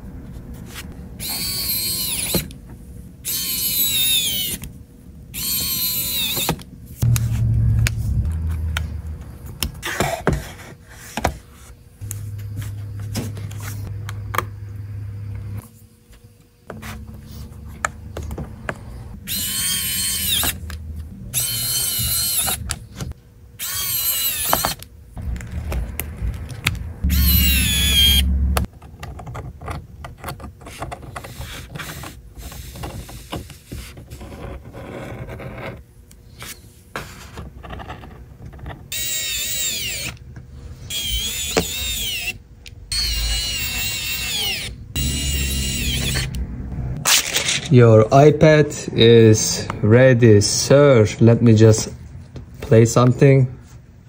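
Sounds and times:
electric screwdriver whirring: 3.3 - 4.6, 5.4 - 6.6, 19.2 - 22.8, 23.6 - 24.9, 27.1 - 28.2, 38.9 - 40.2, 40.9 - 46.4.

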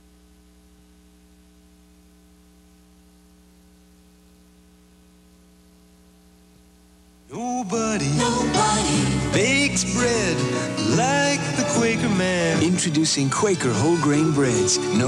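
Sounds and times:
low electrical hum with hiss: 0.0 - 11.6.

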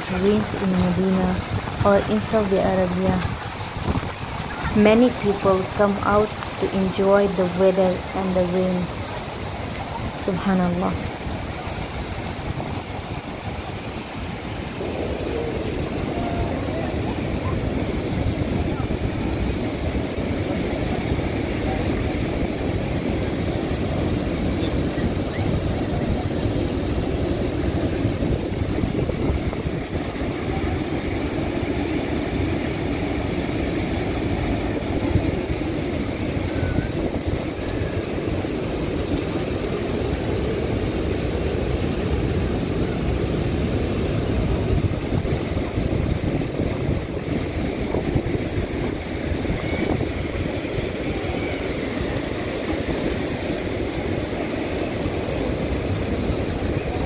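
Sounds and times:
floodwater pouring over weir: 1.4 - 2.3, 3.2 - 4.8.

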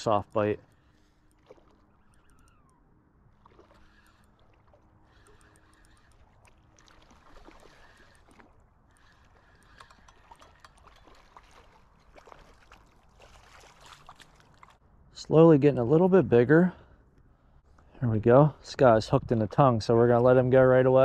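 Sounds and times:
fishing reel ticking: 0.2 - 11.4.

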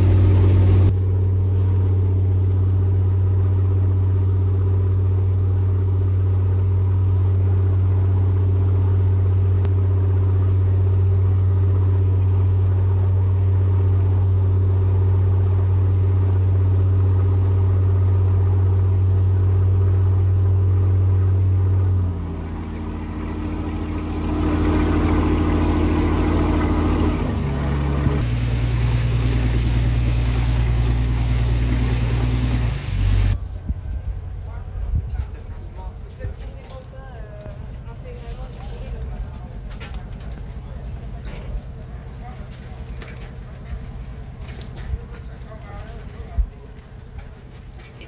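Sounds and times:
water rushing along hull: 0.0 - 1.0, 3.0 - 33.4
boat engine running: 0.0 - 48.0.

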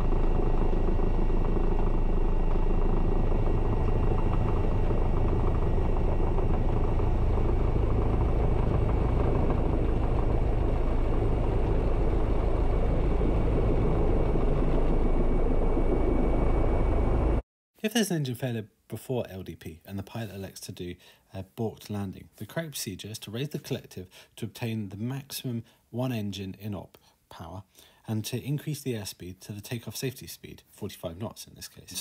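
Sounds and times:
helicopter rotor and engine rumble: 0.0 - 17.4.

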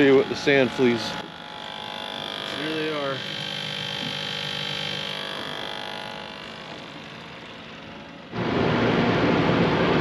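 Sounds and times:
steady mechanical hum: 0.0 - 10.0
loud rushing noise: 8.4 - 10.0.

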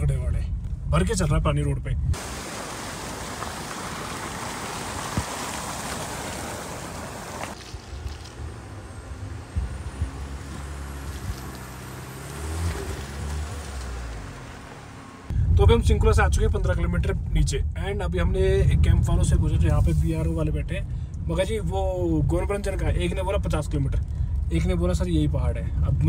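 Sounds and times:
engine low drone: 1.8 - 26.0
tyres washing through water: 2.2 - 15.3
wheels knocking over stones: 3.2 - 14.3.

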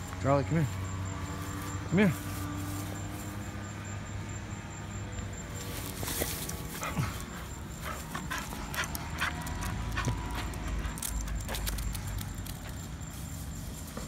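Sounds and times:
dog panting: 6.1 - 12.8.

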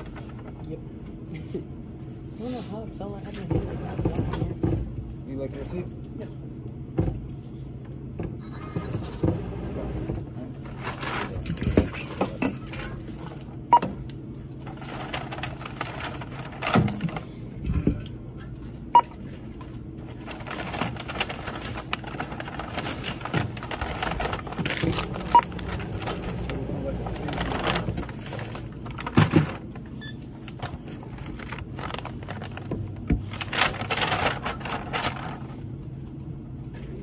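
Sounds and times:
steady low hum: 0.0 - 37.0
items and bags rustling: 14.5 - 17.6, 18.4 - 36.0
barcode scanner beeps: 25.3 - 25.6.

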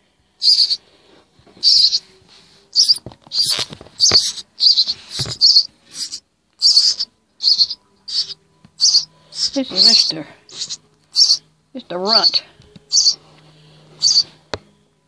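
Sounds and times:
nestling birds begging calls: 0.4 - 0.8, 1.6 - 2.0, 2.7 - 14.4.

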